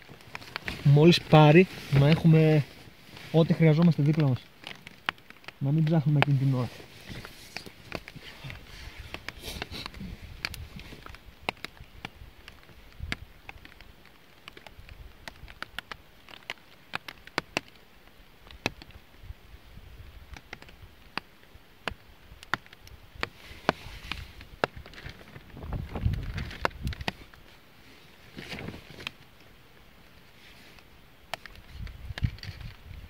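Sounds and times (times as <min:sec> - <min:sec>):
fire crackling and popping: 0:00.0 - 0:33.0.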